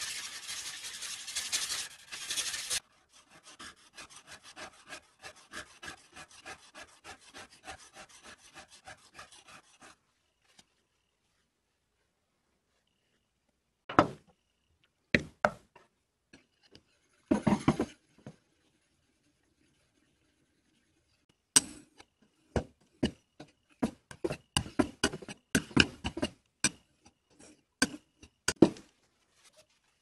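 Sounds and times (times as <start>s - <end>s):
wooden box knocking and scraping: 17.3s - 18.0s.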